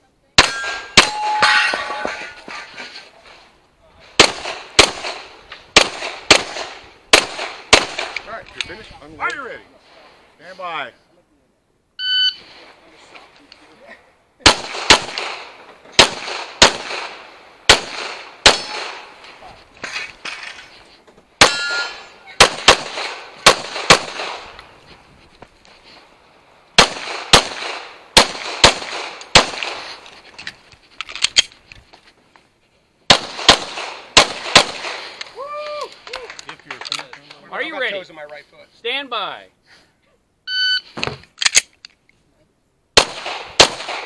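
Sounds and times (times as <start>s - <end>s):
pistol shots: 0.4s - 1.9s, 4.2s - 8.2s, 14.4s - 19.2s, 21.4s - 24.5s, 26.8s - 29.9s, 33.1s - 35.2s, 43.0s - 44.0s.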